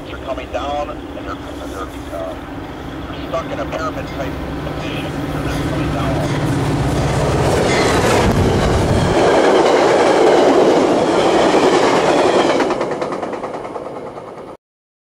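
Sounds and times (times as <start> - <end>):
diesel locomotive engine rumble: 0.0 - 14.6
train wheels clattering: 5.5 - 14.6.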